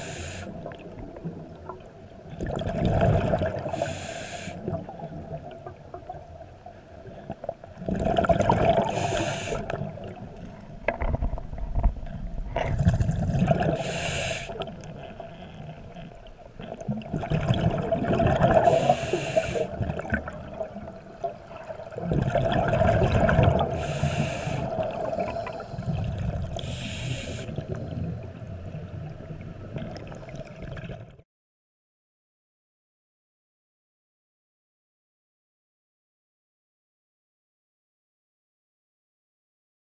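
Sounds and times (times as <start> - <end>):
regulator inhalation hiss: 0.0 - 0.6, 3.7 - 4.6, 8.9 - 9.7, 13.8 - 14.6, 18.7 - 19.8, 23.8 - 25.9, 26.6 - 27.6
faint steady hum: 0.0 - 30.9
gurgling exhaled bubbles: 2.3 - 4.0, 7.8 - 10.4, 11.0 - 28.4, 29.6 - 31.2.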